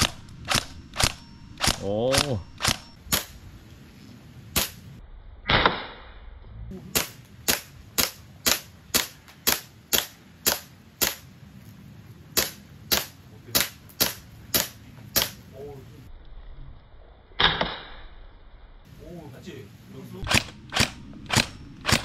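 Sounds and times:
rifle shots: 0.0 - 3.4, 20.2 - 22.0.

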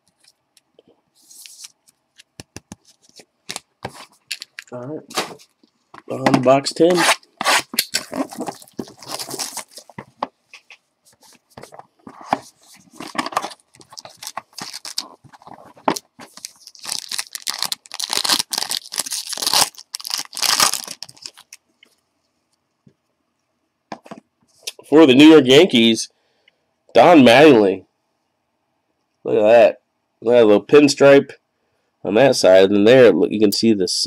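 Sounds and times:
wrapper tearing and crinkling: 7.0 - 10.0, 12.9 - 21.6.

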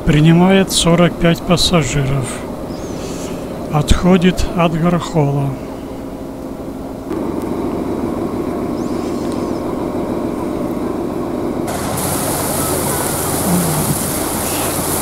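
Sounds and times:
boat engine running: 0.0 - 15.0
rushing hiss of air and water: 11.7 - 15.0.

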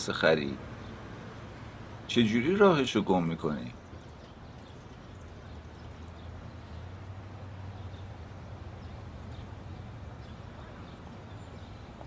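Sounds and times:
car engine rumble: 3.8 - 12.0.

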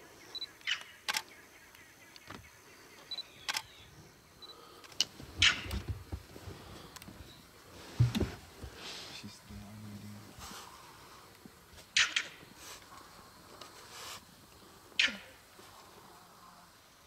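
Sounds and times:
camera shutter clicks: 0.6 - 1.3, 3.4 - 3.8
low knocks: 7.9 - 8.7.

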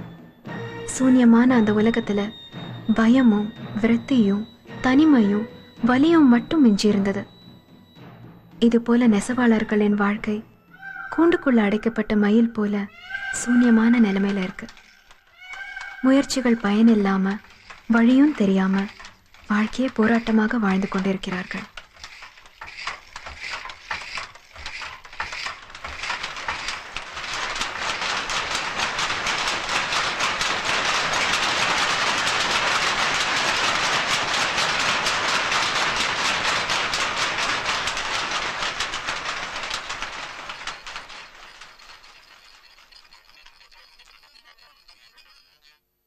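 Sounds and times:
loom wooden clacks: 0.0 - 10.4, 12.8 - 45.8.

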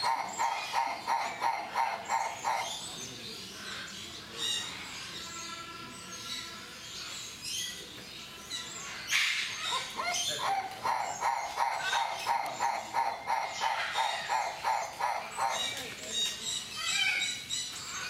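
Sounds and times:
bird hoarse barking calls: 0.0 - 5.0, 8.2 - 18.0.

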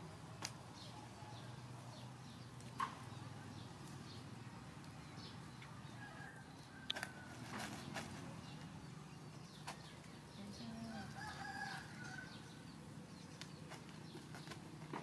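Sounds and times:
rooster crowing: 5.9 - 7.6, 10.8 - 12.6.

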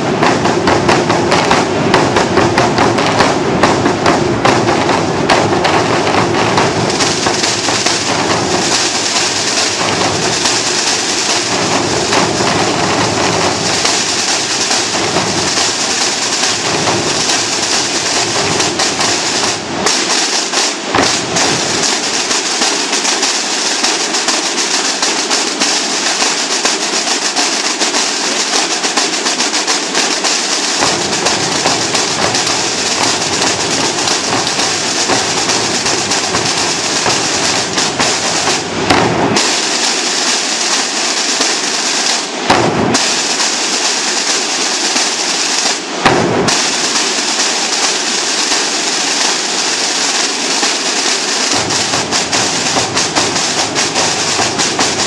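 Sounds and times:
deep bass drums: 0.0 - 10.6
snare drum rolls: 0.0 - 55.0.

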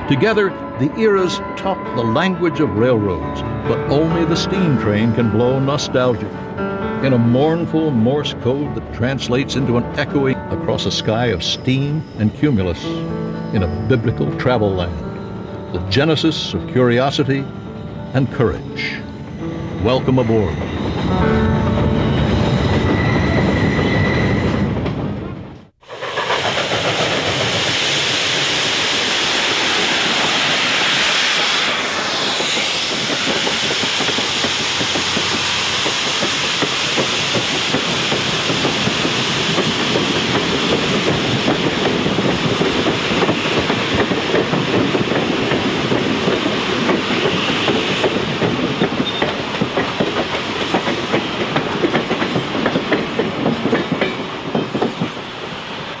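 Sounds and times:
steam train hissing: 25.8 - 56.0.

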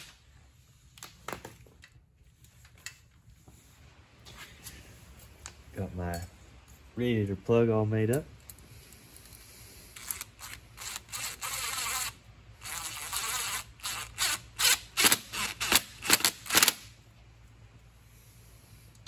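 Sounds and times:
cordless drill running in bursts: 10.1 - 16.7.

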